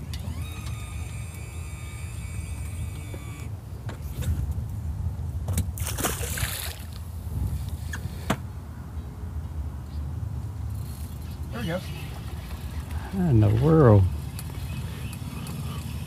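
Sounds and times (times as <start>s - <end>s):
wind rumble on microphone: 3.8s - 8.3s
water splashing: 5.8s - 7.0s.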